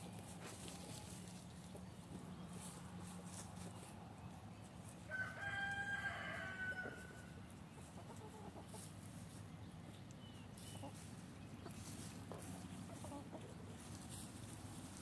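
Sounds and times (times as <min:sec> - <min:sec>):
rooster crowing: 0:05.1 - 0:07.4
hens clucking softly: 0:06.8 - 0:15.0.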